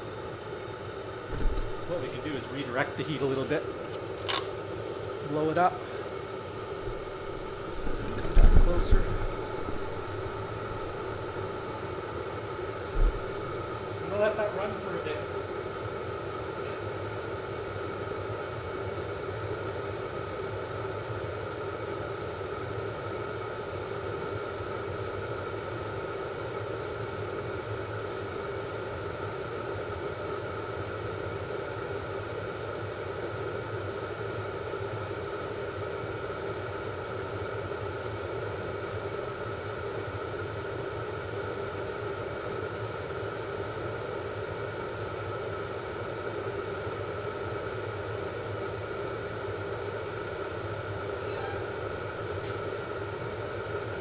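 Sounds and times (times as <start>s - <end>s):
constant whine: 0.0s - 25.2s
air heater blower roar: 0.0s - 54.0s.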